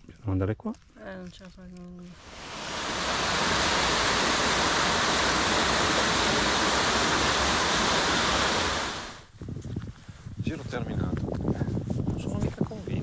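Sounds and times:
waterfall pouring over rocks: 2.1 - 9.2.

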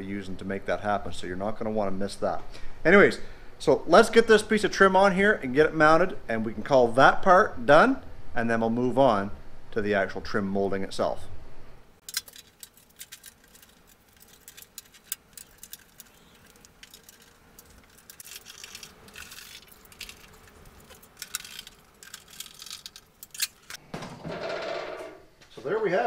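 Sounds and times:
light clicks and metallic rattles: 12.0 - 23.8.

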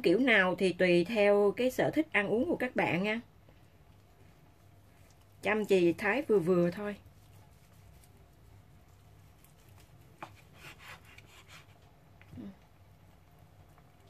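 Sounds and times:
low steady hum: 0.0 - 14.0
knife cutting through meat: 10.2 - 11.8.

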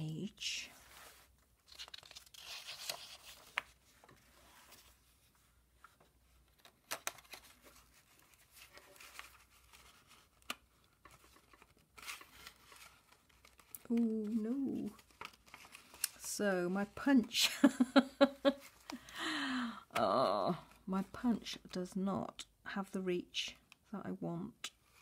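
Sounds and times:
paper and card rustling: 0.4 - 19.2.

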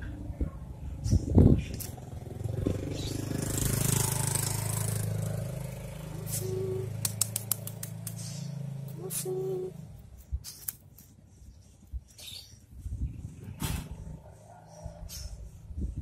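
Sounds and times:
engine humming: 0.0 - 11.4
sharp clicks: 6.9 - 8.4.

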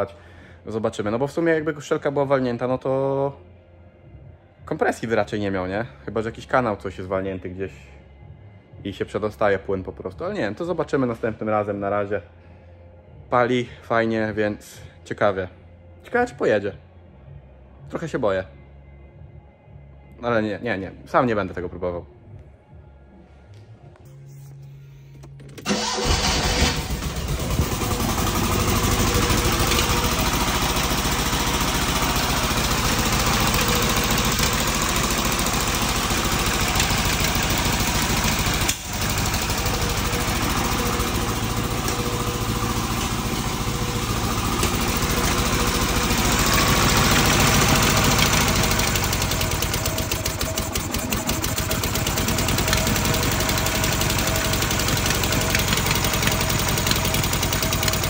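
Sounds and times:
two-cylinder car engine running: 25.6 - 58.0.

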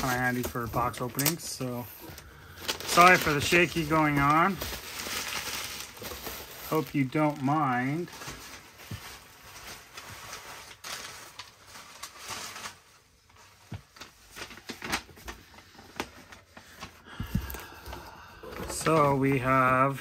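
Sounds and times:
cardboard packaging taps and rustles: 8.2 - 10.3.

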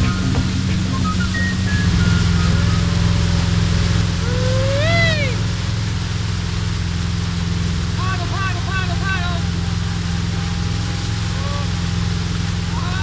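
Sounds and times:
churning boat wake: 0.0 - 13.0
motorboat engine drone: 0.0 - 13.0
person calling out: 4.2 - 5.4, 8.0 - 10.0.

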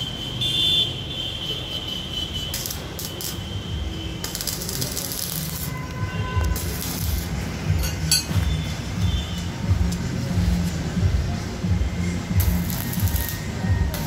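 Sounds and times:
welding arc crackling and hissing: 2.0 - 8.6, 9.3 - 14.0.

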